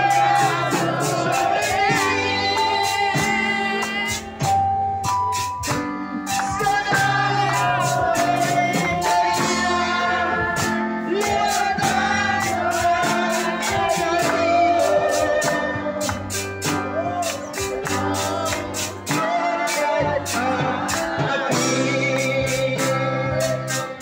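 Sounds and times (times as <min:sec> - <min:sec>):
worship singing with band: 0:00.0 - 0:24.0.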